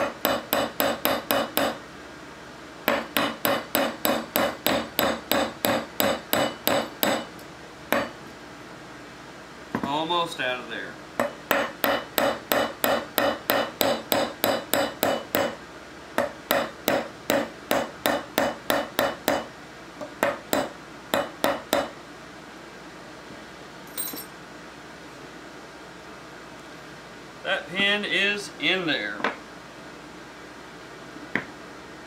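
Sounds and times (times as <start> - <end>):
hammer tapping metal punch: 0.0 - 1.8, 2.9 - 7.3, 7.9 - 8.2, 11.2 - 15.6, 16.2 - 22.0.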